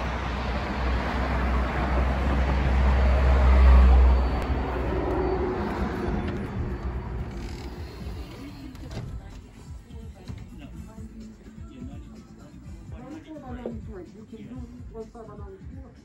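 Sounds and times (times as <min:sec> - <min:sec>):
road traffic rumble: 0:00.0 - 0:11.5.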